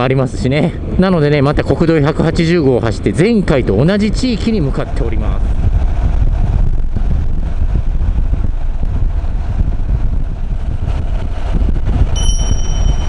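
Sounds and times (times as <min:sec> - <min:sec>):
wind rushing over microphone: 0:00.0 - 0:13.0
thin high steady tone: 0:12.2 - 0:13.0.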